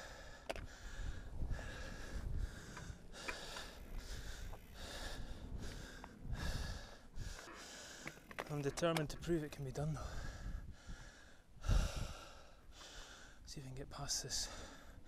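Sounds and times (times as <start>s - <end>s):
person breathing hard: 0.0s - 8.3s, 10.0s - 13.4s
bike clicks and knocks: 0.4s - 0.7s, 2.7s - 4.7s, 7.3s - 9.3s.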